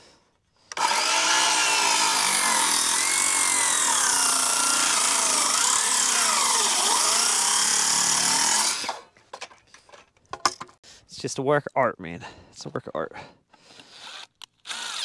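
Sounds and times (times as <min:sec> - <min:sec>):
circular saw cutting wood: 0:00.7 - 0:09.0, 0:13.8 - 0:15.0.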